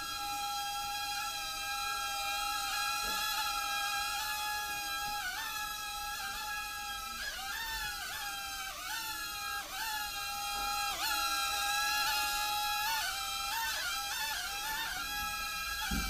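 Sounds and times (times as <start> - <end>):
toy drone motors whining: 0.0 - 16.0.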